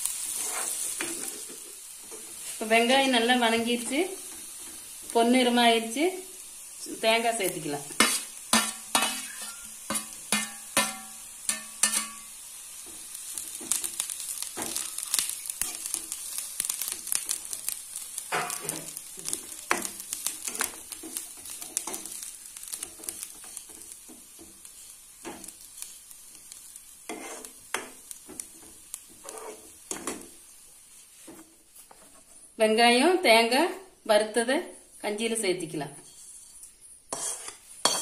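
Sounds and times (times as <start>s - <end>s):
food sizzling in oil: 0.0s - 38.0s
steel spoon scraping pan: 0.3s - 3.2s, 8.0s - 12.3s, 27.1s - 28.0s, 29.1s - 30.2s, 36.0s - 38.0s.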